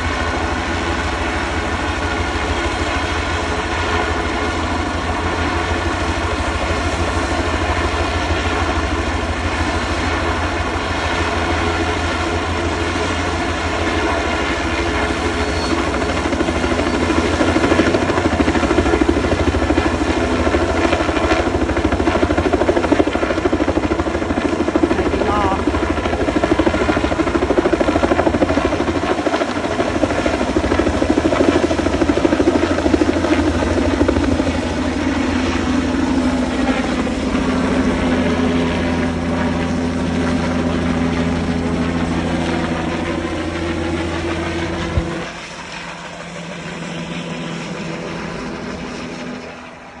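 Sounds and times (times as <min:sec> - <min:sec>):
helicopter rotor beat: 0:00.0 - 0:50.0
turbine whine: 0:00.0 - 0:50.0.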